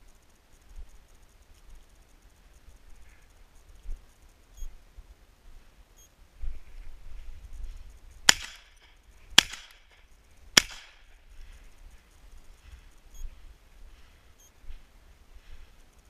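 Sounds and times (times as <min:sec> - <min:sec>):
shotgun shots: 0:08.3 - 0:10.0, 0:10.6 - 0:11.2.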